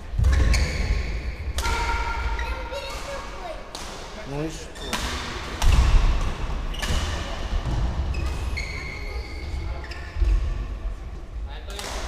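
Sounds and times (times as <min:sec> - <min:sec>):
shoes squeaking on court floor: 0:00.3 - 0:01.2, 0:06.7 - 0:10.6.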